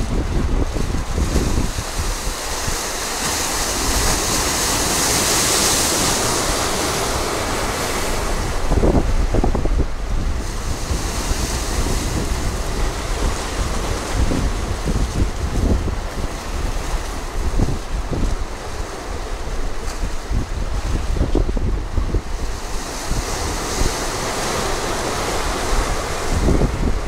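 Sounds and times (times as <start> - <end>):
waves breaking over rocks: 0.0 - 27.0
wind buffeting microphone: 0.0 - 27.0.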